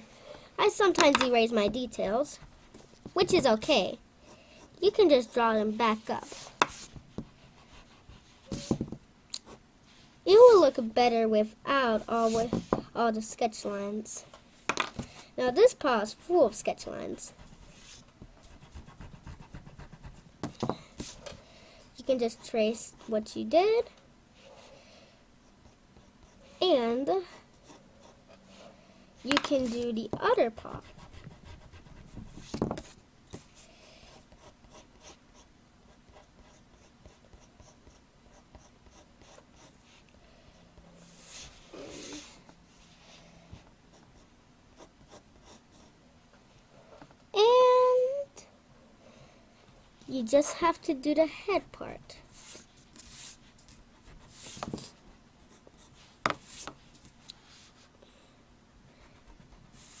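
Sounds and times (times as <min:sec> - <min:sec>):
pencil scratching on paper: 0:04.6 - 0:08.8, 0:17.4 - 0:20.2, 0:27.2 - 0:42.4, 0:43.9 - 0:45.9, 0:52.3 - 0:56.7, 0:59.1 - 1:00.0.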